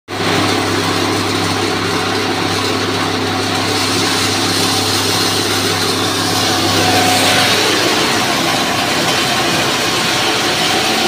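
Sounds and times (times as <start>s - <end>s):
grain milling machines running: 0.1s - 11.0s
motor hum: 0.7s - 11.0s
even rushing noise: 4.4s - 11.0s.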